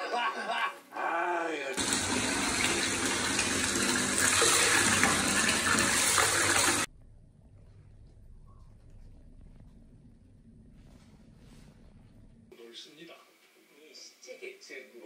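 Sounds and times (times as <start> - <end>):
water gushing into bathtub: 1.8 - 6.9.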